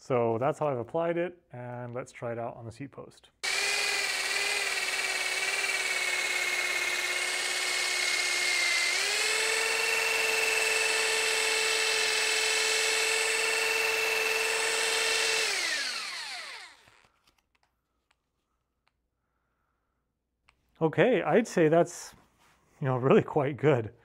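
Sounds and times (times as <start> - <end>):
electric drill motor whine: 3.4 - 17.1.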